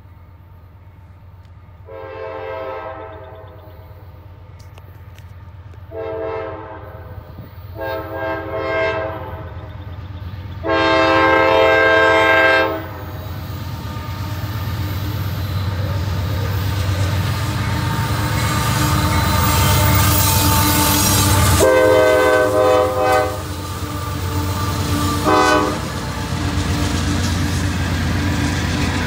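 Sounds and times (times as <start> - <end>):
approaching train rumble: 0.0 - 29.0
locomotive air horn blasts: 1.8 - 3.6, 5.9 - 9.5, 10.6 - 14.6, 17.7 - 26.7.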